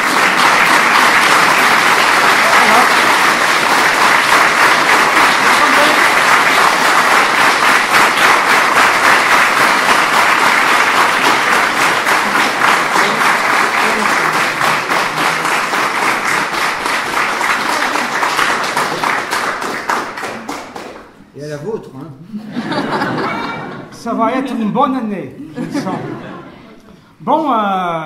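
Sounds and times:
audience applauding: 0:00.0 - 0:21.2.

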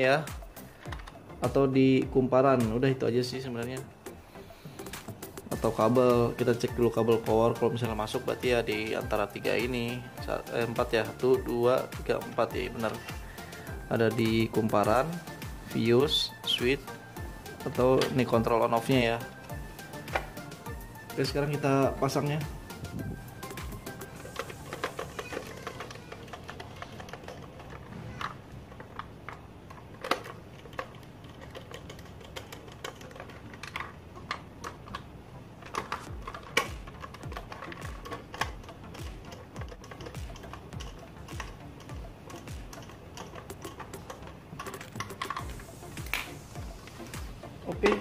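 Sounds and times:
small clicks and taps: 0:22.1 - 0:48.0.

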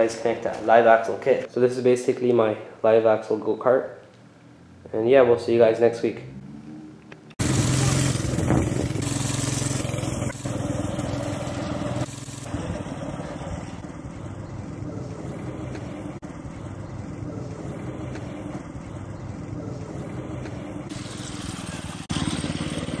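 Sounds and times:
distant go-kart engine running: 0:06.5 - 0:23.0.

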